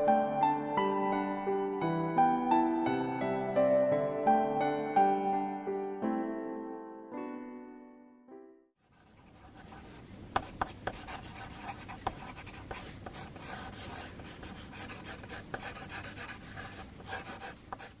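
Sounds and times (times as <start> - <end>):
eraser rubbing on paper: 8.9 - 18.0.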